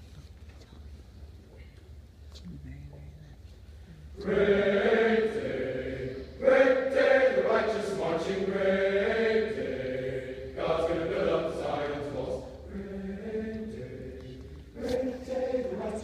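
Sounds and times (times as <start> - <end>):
voices singing slow melody: 4.1 - 16.0.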